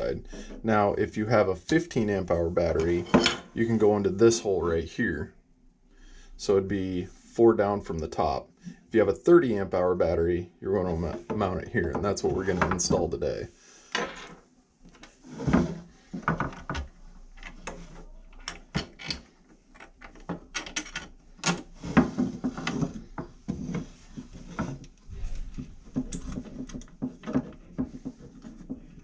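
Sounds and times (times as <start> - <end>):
plastic parts clicking and knocking: 16.1 - 29.0.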